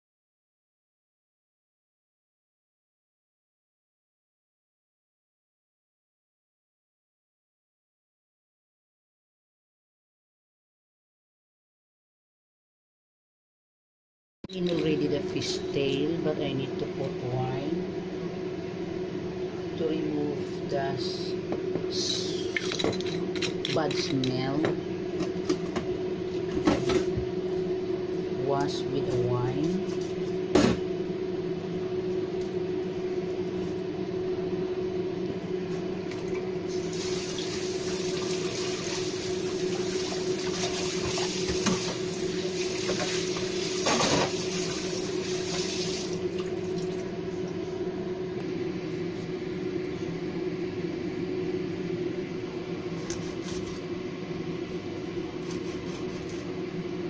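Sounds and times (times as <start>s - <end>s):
steady low hum: 14.5s - 57.0s.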